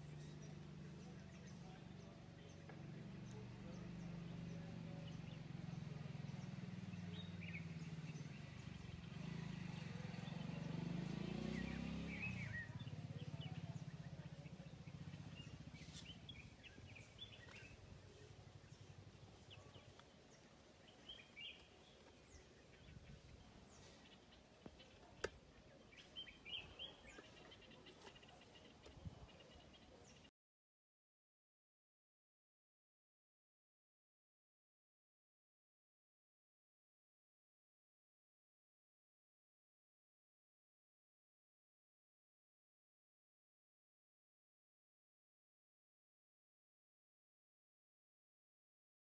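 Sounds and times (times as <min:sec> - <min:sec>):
bird chirps: 0:10.1 - 0:30.3.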